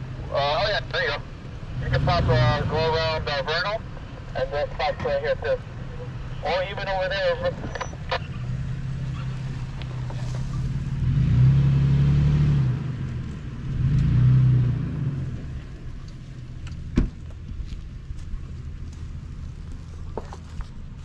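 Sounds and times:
suv engine revving: 0.0s - 4.4s, 7.4s - 17.6s.

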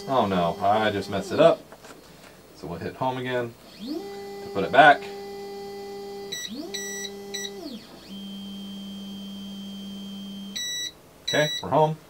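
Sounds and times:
stepper motor whine: 0.0s - 1.6s, 3.1s - 11.0s
low steady hum: 0.0s - 12.0s
short electronic beeps: 6.3s - 11.7s.

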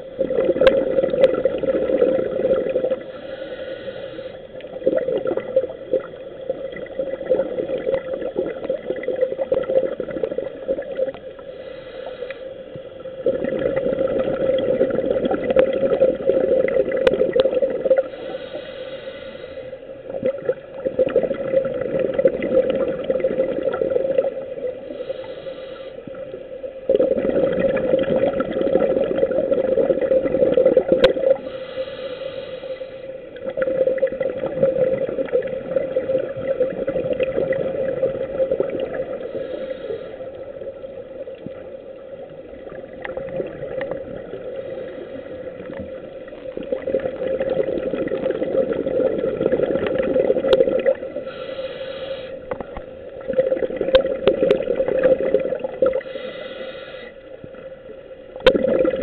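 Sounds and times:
bubbling regulator exhales: 0.0s - 12.3s, 13.2s - 18.7s, 20.1s - 25.5s, 26.2s - 32.5s, 33.4s - 41.6s, 42.5s - 57.1s, 58.4s - 59.0s
hiss of regulator inhale: 2.9s - 4.8s, 11.4s - 13.2s, 18.0s - 20.0s, 24.7s - 26.4s, 31.4s - 33.4s, 39.0s - 40.8s, 44.4s - 45.8s, 51.1s - 52.6s, 55.9s - 57.5s.

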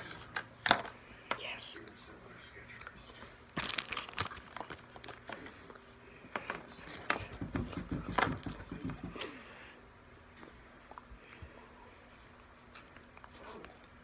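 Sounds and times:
child chewing candy: 2.6s - 7.2s, 10.3s - 14.0s.

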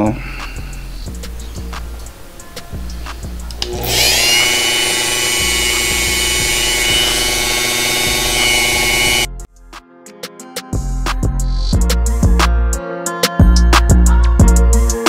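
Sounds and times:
background music: 0.0s - 15.0s
rotary tool whining: 2.1s - 9.3s.

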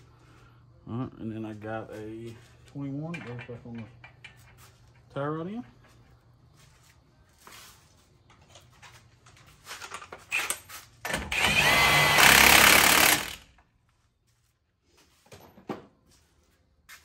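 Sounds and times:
impact wrench running: 11.1s - 13.6s.

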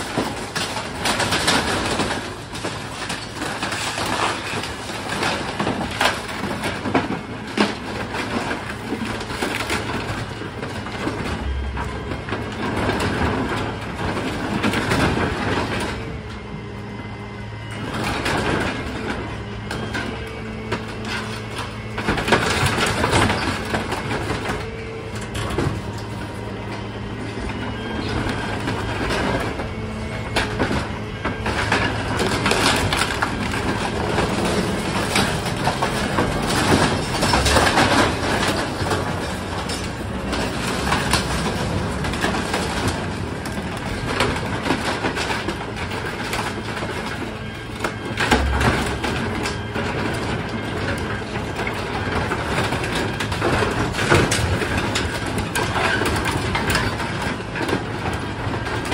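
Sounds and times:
truck engine and hydraulics humming: 0.0s - 58.9s
wood and cardboard cracking: 17.6s - 58.9s.

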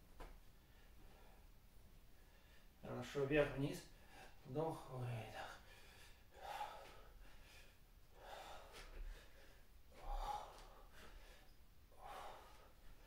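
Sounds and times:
man breathing deeply: 5.5s - 13.0s.

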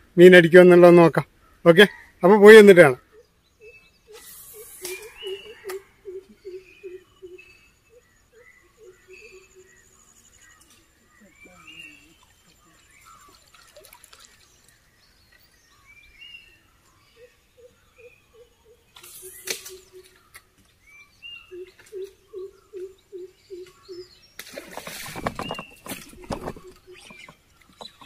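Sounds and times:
small birds chirping: 2.8s - 28.0s
deep hooting bird call: 3.0s - 10.0s, 21.4s - 24.1s.

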